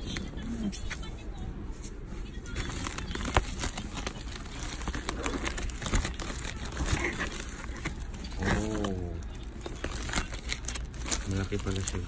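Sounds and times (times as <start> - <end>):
plastic mailer crinkling: 2.5 - 12.0.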